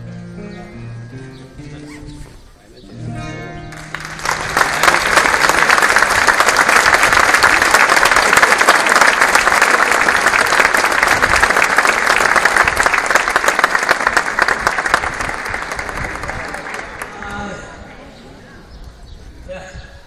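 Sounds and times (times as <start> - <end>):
crowd applauding: 3.7 - 17.7.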